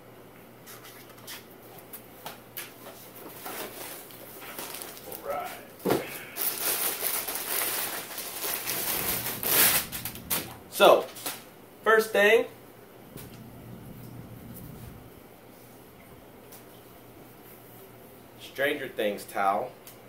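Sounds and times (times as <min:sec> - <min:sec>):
plastic packaging crinkling: 0:03.3 - 0:05.4, 0:06.4 - 0:11.4.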